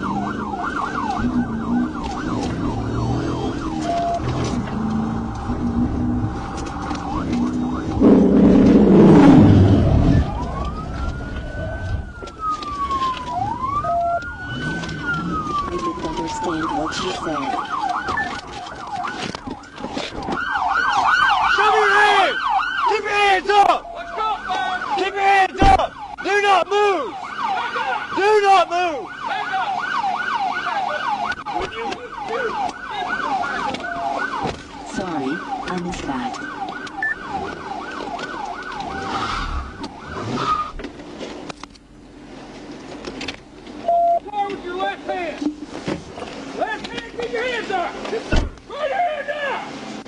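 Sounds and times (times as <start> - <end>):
police siren wailing: 0.0 - 40.7
car collision and scraping: 5.6 - 11.5.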